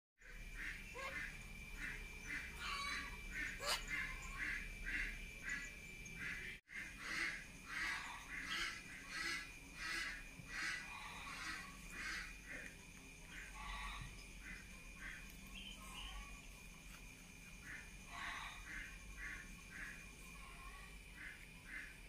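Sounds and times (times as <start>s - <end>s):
raspy bird calls: 0.2s - 12.7s.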